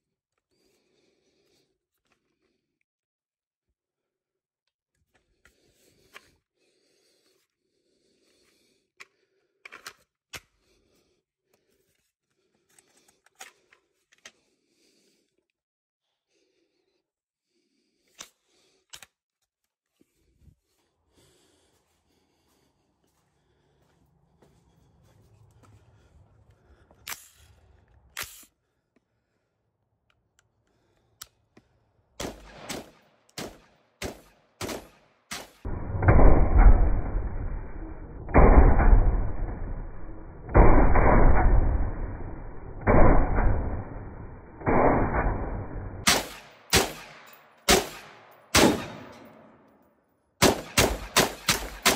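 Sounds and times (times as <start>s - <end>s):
rifle shots: 32.2s - 37.2s, 38.2s - 49.5s, 50.4s - 51.9s.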